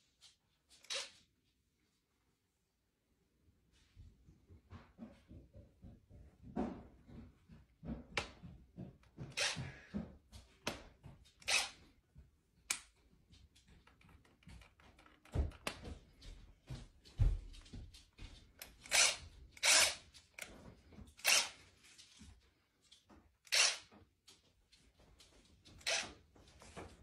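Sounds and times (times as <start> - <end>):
cordless drill spinning: 9.2 - 9.8, 11.4 - 11.8, 18.6 - 22.2, 23.4 - 24.0, 25.8 - 26.2.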